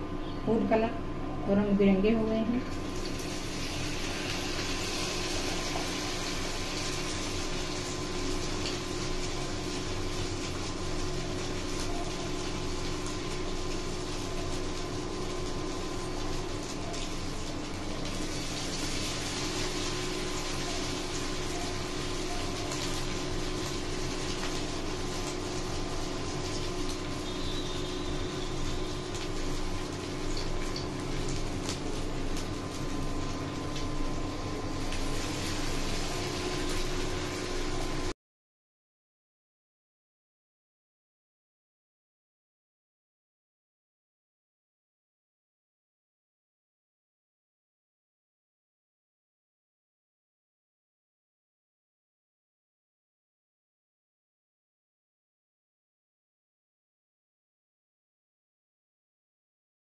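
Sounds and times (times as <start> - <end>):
oil sizzling and bubbling: 2.1 - 38.2.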